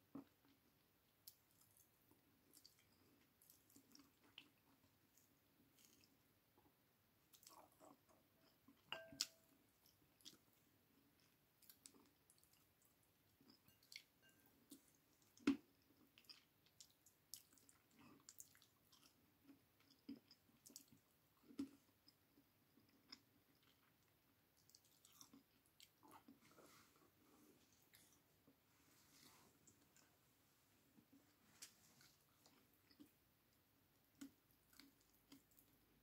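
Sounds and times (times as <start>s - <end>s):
chewing and lip smacks: 1.2s - 6.2s, 7.3s - 10.5s, 14.7s - 22.2s, 22.8s - 26.4s, 34.1s - 35.8s.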